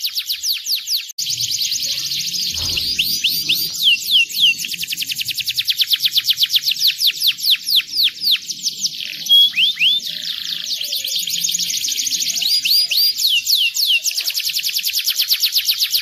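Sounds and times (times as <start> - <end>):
canary singing: 0.0 - 16.0.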